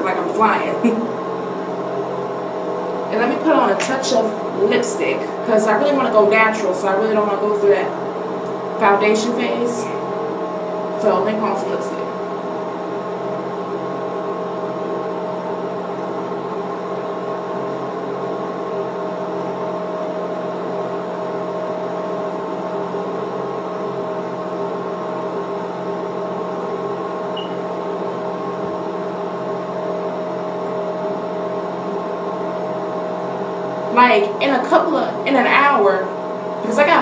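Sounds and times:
steady mechanical hum: 0:00.0 - 0:37.0.

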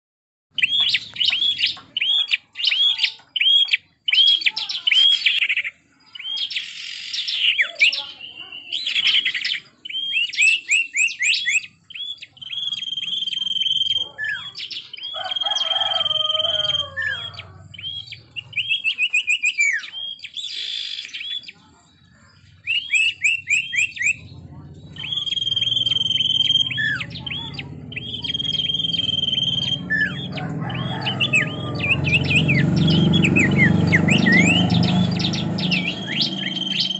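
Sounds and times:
bird singing chirps and trills: 0:00.6 - 0:36.9
long whistled bird notes: 0:08.1 - 0:21.6, 0:24.9 - 0:36.9.

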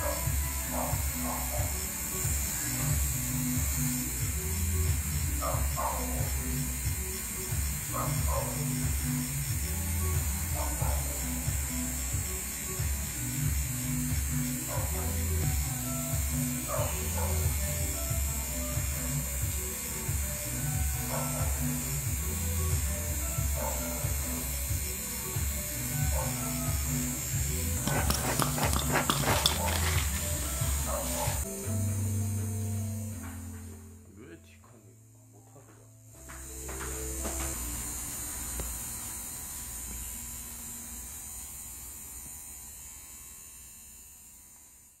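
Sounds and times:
tattoo machine buzzing: 0:00.0 - 0:34.0, 0:36.0 - 0:45.0
music playing: 0:00.0 - 0:39.9
electric hum: 0:21.8 - 0:44.4.

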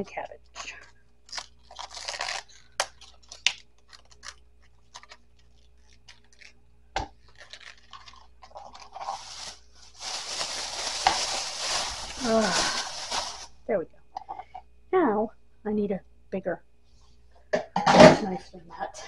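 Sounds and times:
cabbage leaves being pulled off: 0:01.3 - 0:02.4, 0:07.3 - 0:13.5
steady hiss: 0:09.0 - 0:13.6.

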